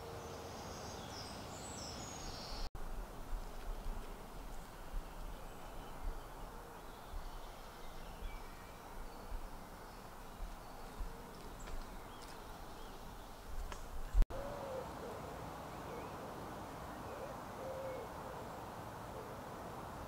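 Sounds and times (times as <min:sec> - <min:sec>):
steady outdoor hiss: 0:00.0 - 0:20.0
owl hooting: 0:14.3 - 0:15.3, 0:17.0 - 0:18.6.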